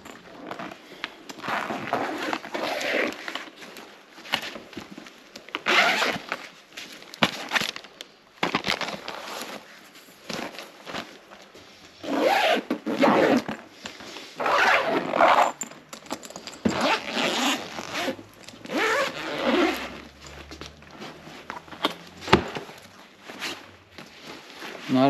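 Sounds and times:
suitcase zipper being pulled: 0:01.4 - 0:03.3, 0:05.7 - 0:06.2, 0:12.0 - 0:13.6, 0:14.4 - 0:15.6, 0:16.6 - 0:21.2.

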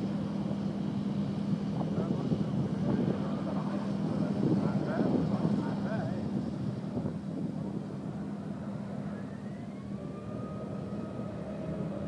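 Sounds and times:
rising whine: 0:08.8 - 0:12.0.

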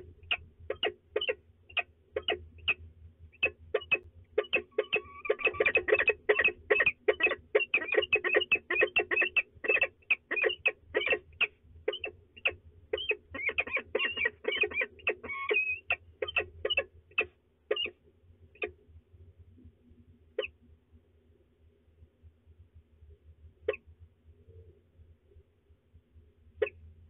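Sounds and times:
falcons calling sharply: 0:03.4 - 0:16.9.

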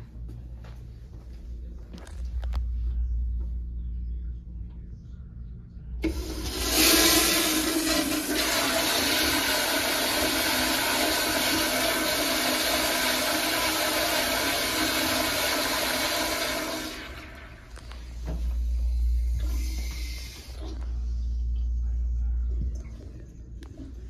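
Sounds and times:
toilet flushing: 0:06.0 - 0:18.4, 0:19.0 - 0:20.9.

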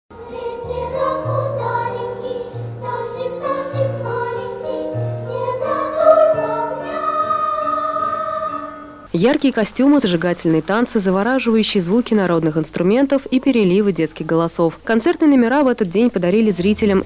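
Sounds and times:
children's choir singing: 0:00.1 - 0:09.1
instrumental accompaniment: 0:00.2 - 0:09.2, 0:16.4 - 0:17.0
low bass notes: 0:16.5 - 0:17.0.

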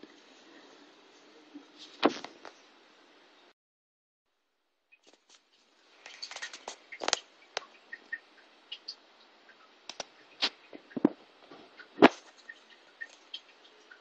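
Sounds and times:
sharp clicks and taps: 0:09.9 - 0:11.2.

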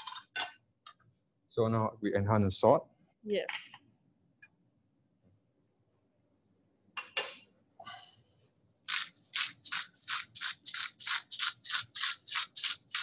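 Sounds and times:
salt grinder grinding: 0:08.9 - 0:13.0.

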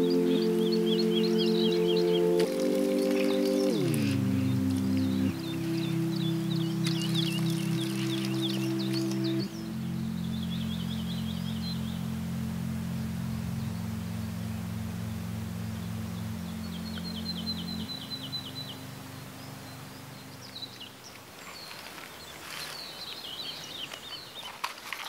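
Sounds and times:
held music chords: 0:00.0 - 0:21.2
small birds chirping: 0:00.0 - 0:25.0.

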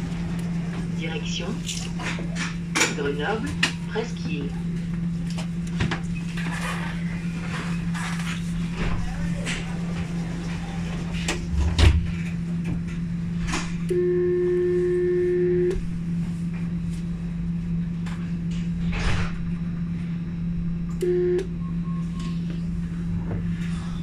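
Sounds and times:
tram equipment humming: 0:00.0 - 0:24.0
buzzer tone: 0:13.9 - 0:15.9, 0:21.0 - 0:22.5.

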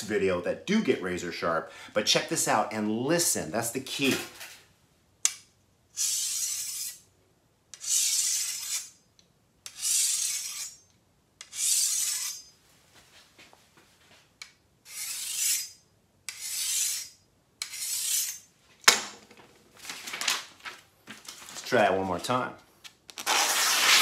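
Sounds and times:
sharpening stone scraping machete: 0:05.9 - 0:07.1, 0:07.7 - 0:09.0, 0:09.6 - 0:12.5, 0:14.8 - 0:18.5.

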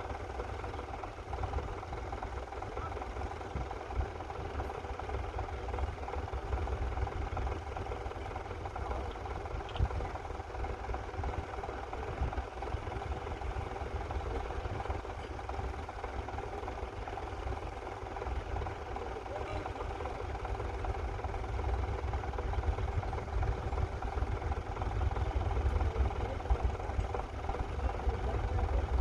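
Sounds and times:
tractor engine running: 0:00.0 - 0:29.0.

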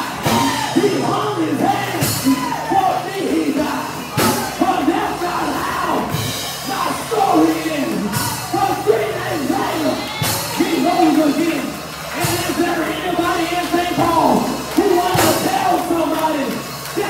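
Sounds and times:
preacher chanting into microphone: 0:00.0 - 0:11.6
church band low held notes: 0:00.0 - 0:17.0.

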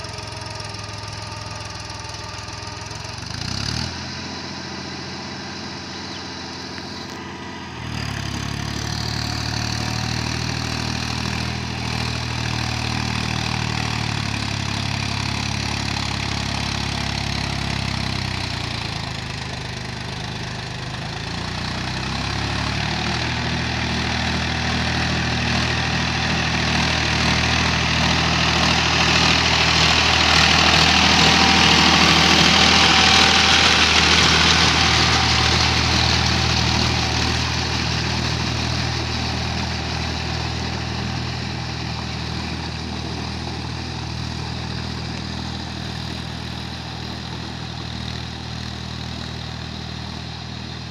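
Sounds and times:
tractor diesel engine running: 0:00.0 - 0:50.9
mud and water churning: 0:25.4 - 0:46.1.

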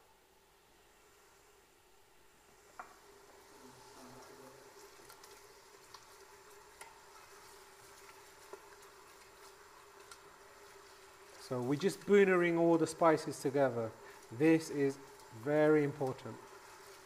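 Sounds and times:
spices frying in oil: 0:00.9 - 0:17.0
spoon stirring in pot: 0:04.8 - 0:11.4.

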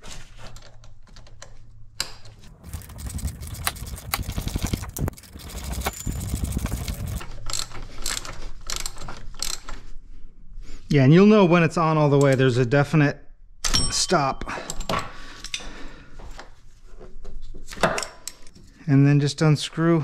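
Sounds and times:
ratchet wrench clicking: 0:02.6 - 0:09.7.

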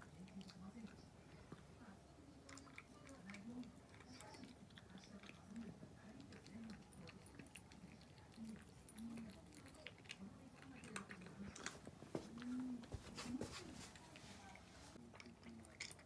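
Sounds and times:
cat crunching dry kibble: 0:15.1 - 0:16.0.

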